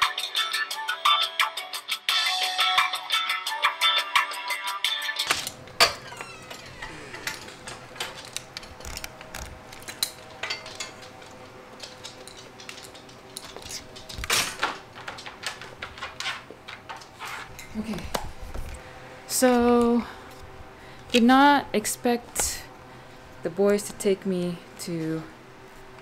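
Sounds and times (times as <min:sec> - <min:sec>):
music: 0:00.0 - 0:07.8
steady low hum: 0:05.5 - 0:26.0
small clicks and knocks: 0:07.2 - 0:17.1.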